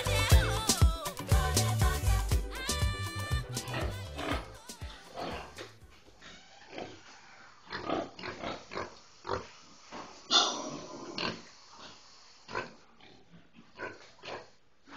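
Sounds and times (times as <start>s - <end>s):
pigs grunting: 3.6s - 9.6s, 10.3s - 14.9s.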